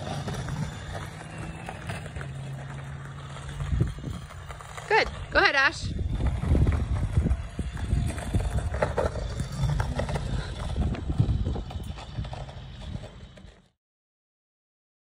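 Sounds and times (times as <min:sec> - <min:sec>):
wind rumble on microphone: 0:03.2 - 0:13.7.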